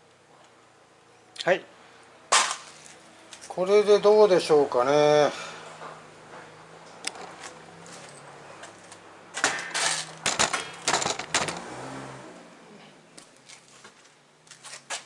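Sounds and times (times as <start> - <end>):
objects clattering and rattling: 7.1 - 11.7.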